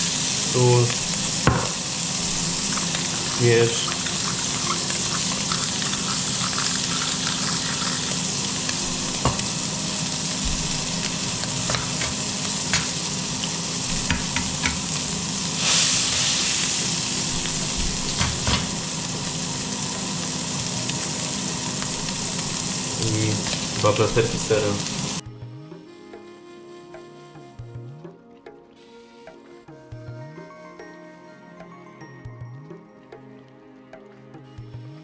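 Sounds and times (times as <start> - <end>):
burger sizzling in a pan: 0.0 - 25.2.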